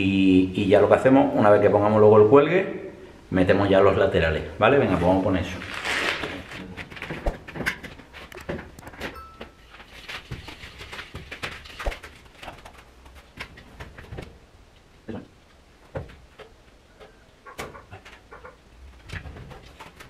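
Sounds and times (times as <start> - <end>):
knocks and clatter on metal scaffold: 6.8 - 14.4, 19.0 - 20.0.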